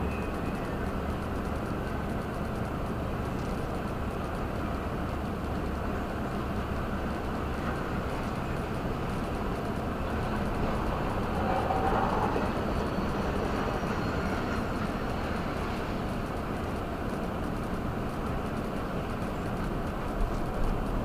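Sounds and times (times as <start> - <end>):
freight train wheels passing: 3.8 - 21.0.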